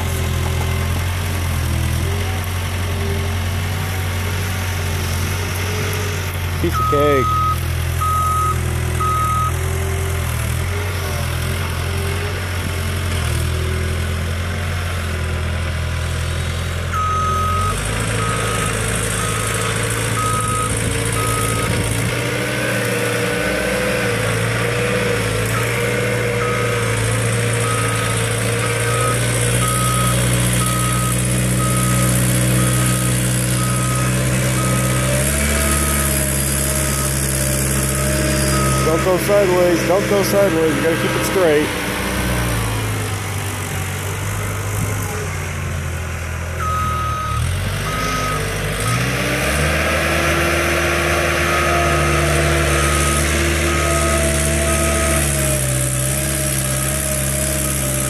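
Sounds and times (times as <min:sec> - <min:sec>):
loader diesel engine running hard: 0:00.0 - 0:58.0
backup alarm beeping: 0:06.7 - 0:09.5.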